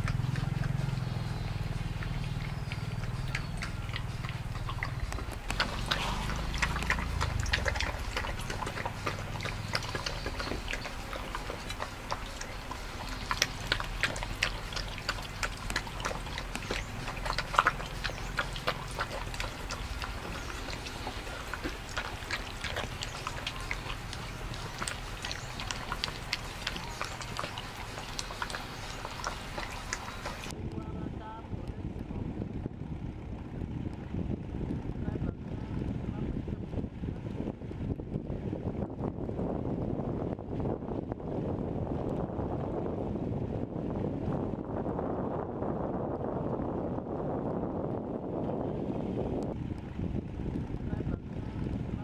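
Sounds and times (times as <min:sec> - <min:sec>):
dog lapping from metal bowl: 0:00.0 - 0:30.5.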